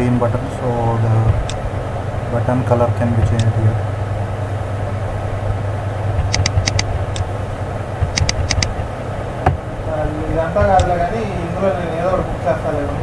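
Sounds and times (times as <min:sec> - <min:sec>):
low background hum: 0:00.0 - 0:13.0
computer mouse clicking: 0:06.2 - 0:07.3, 0:08.0 - 0:08.7.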